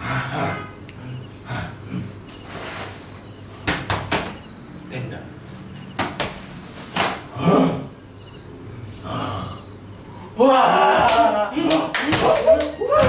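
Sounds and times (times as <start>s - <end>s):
cricket chirping: 0.0s - 13.0s
sharp knocks: 3.6s - 4.4s, 5.9s - 6.4s.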